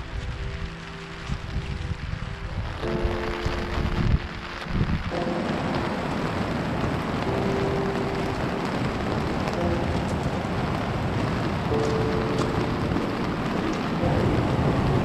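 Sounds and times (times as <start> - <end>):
river water rushing: 2.8 - 15.0.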